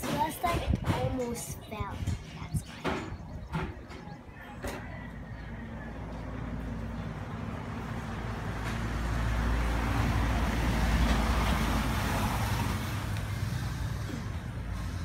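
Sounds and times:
vehicle passing by: 4.9s - 15.0s.

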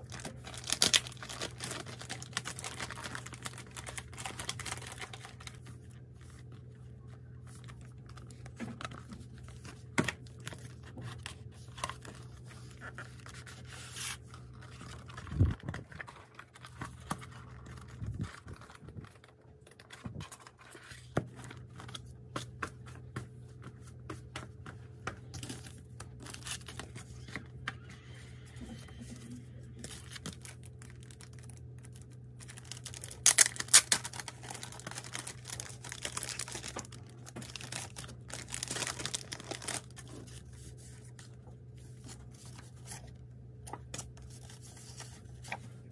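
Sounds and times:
plastic sleeve crinkling and tearing: 0.0s - 5.6s, 29.8s - 41.3s.

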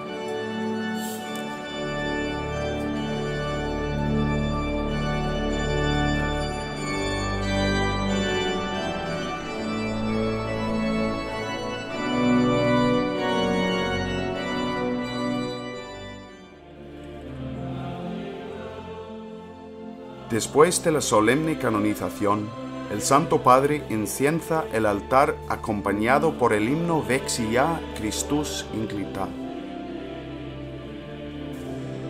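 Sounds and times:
church organ chords: 0.0s - 32.0s.

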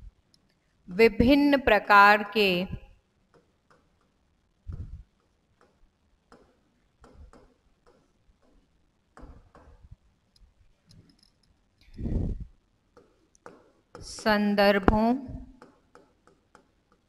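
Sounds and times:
pen writing on board: 3.3s - 4.2s, 5.2s - 9.8s, 12.9s - 14.2s, 15.5s - 17.0s.

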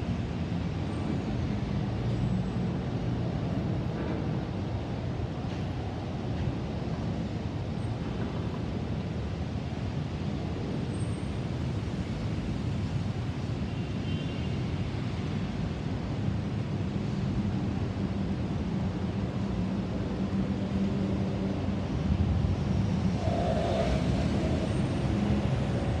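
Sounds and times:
jet engines rumbling: 21.6s - 26.0s.

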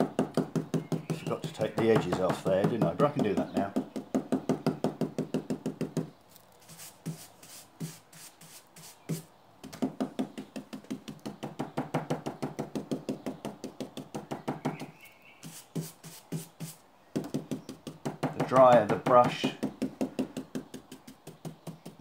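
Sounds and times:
stipple brush knocking on board: 0.1s - 6.1s, 15.5s - 22.0s.

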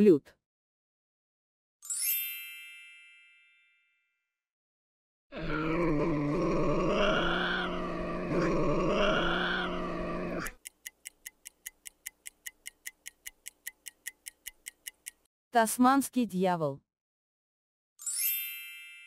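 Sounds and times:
animal growling: 5.3s - 10.6s
clock ticking: 10.5s - 15.3s.

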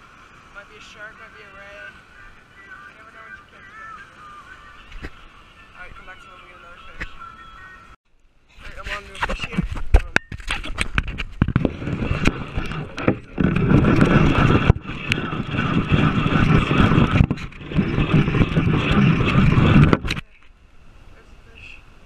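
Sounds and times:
wind buffeting microphone: 8.6s - 20.3s.

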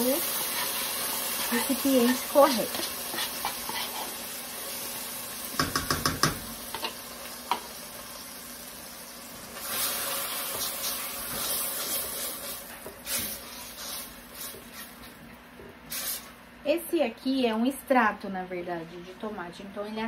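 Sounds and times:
paste sizzling in hot oil: 0.0s - 15.1s
spatula knocking on container: 5.6s - 6.5s.

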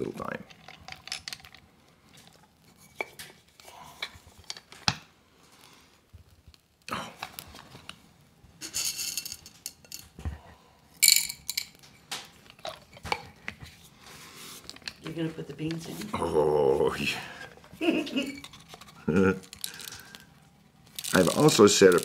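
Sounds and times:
grinder parts scraping: 8.6s - 10.1s, 18.2s - 20.2s, 21.0s - 22.0s
coffee grinder parts clicking: 21.0s - 22.0s.

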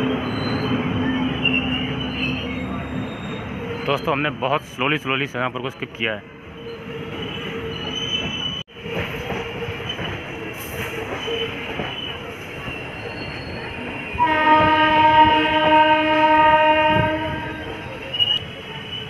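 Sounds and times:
train wheels rumbling on track: 0.0s - 19.0s
locomotive horn blast: 14.2s - 17.8s.

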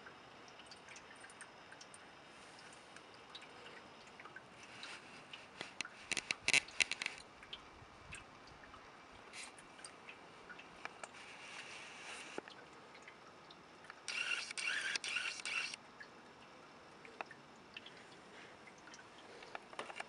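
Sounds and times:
faint ticks: 0.0s - 20.0s
sharp clicks: 13.9s - 15.8s.

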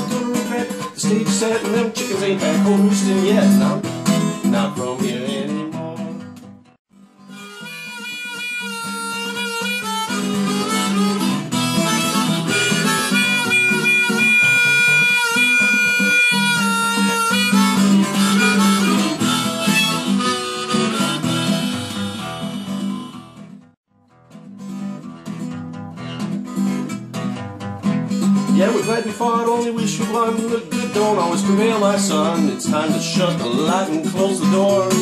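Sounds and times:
strummed acoustic guitar: 0.0s - 35.0s
harmonica solo: 7.1s - 23.5s.

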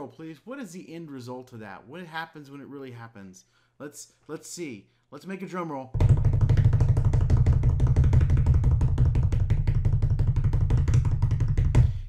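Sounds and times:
fingers drumming on a desk: 6.0s - 12.0s.

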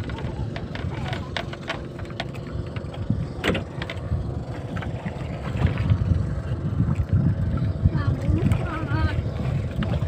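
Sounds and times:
wood and rope clicks and knocks: 0.0s - 4.0s
low steady rumble: 0.0s - 10.0s.

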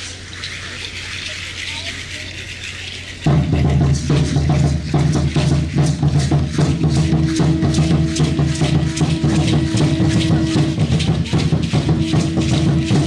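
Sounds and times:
seed-pod ankle rattles shaking: 0.0s - 13.0s
loud drum beat: 3.3s - 13.0s.

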